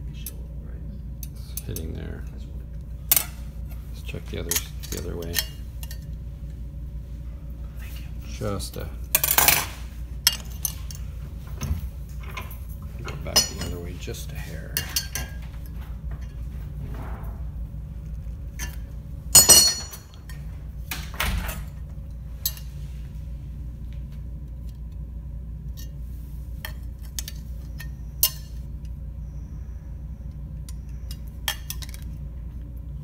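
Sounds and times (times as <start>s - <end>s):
steady low hum: 0.0s - 33.0s
ringing metal clank: 19.4s - 20.2s
metal tools knocking together: 19.4s - 20.4s.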